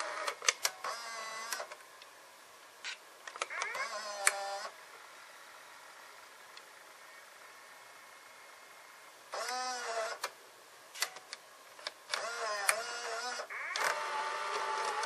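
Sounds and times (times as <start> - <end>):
cassette deck motor whirring: 0.0 - 1.8, 3.4 - 5.1, 9.4 - 10.3, 12.1 - 15.0
tape transport running: 12.1 - 15.0.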